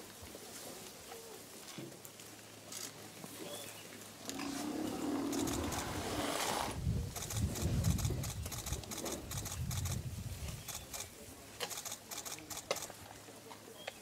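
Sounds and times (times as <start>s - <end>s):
sharp clicks: 7.2s - 10.0s, 10.6s - 13.0s.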